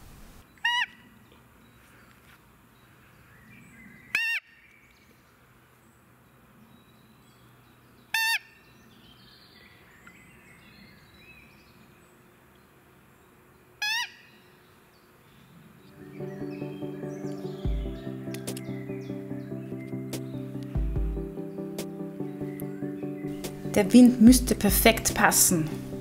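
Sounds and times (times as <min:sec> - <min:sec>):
faint birdsong: 0:00.4 - 0:26.0
deer call peeps: 0:00.6 - 0:01.1, 0:13.8 - 0:14.2.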